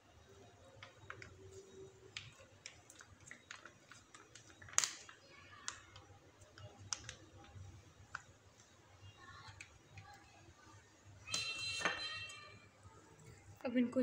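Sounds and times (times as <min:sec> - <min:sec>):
plastic pouch crinkling and clicking: 0:00.8 - 0:10.2.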